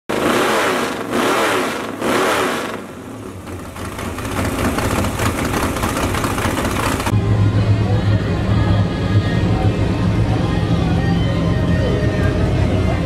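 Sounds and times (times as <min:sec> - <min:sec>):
car engine revving: 0:00.1 - 0:07.1
engine rough rumble: 0:00.1 - 0:13.0.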